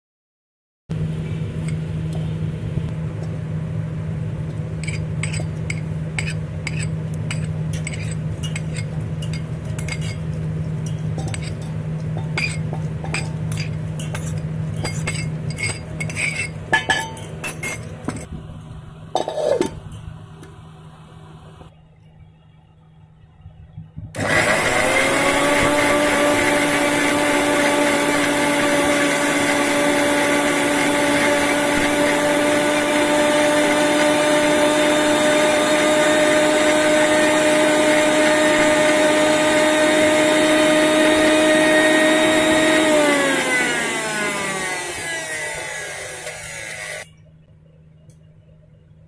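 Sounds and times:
mixer grinder motor whine: 0:24.1 - 0:47.1.

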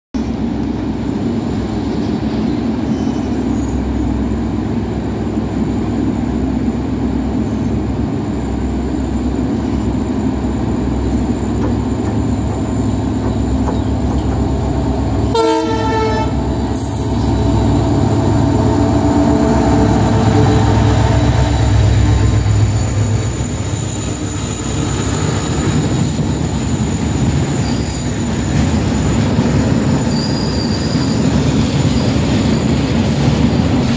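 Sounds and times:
diesel locomotive engine: 0:00.1 - 0:33.9
locomotive horn blast: 0:15.2 - 0:22.7
wheel squeal: 0:22.4 - 0:33.9.

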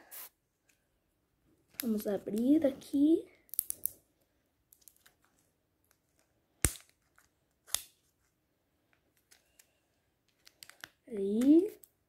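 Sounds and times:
plastic egg shell clicks: 0:03.5 - 0:04.0, 0:10.3 - 0:12.0.

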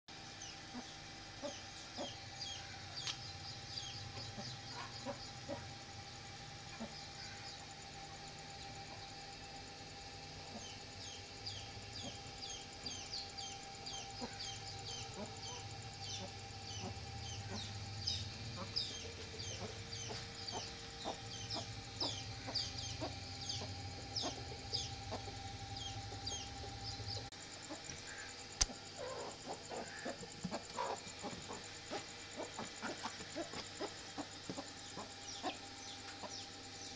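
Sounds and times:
low hum: 0:00.1 - 0:36.9
high peeping chirps: 0:00.4 - 0:05.7, 0:10.4 - 0:36.9
hens clucking: 0:18.5 - 0:28.2, 0:29.0 - 0:35.6
sharp click: 0:28.6 - 0:28.8.

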